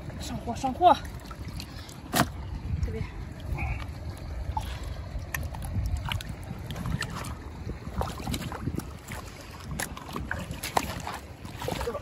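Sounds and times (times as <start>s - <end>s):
low wind rumble on microphone: 0.0s - 12.0s
splashing in shallow water: 0.0s - 12.0s
sharp splashes and slaps: 1.2s - 2.5s, 5.2s - 12.0s.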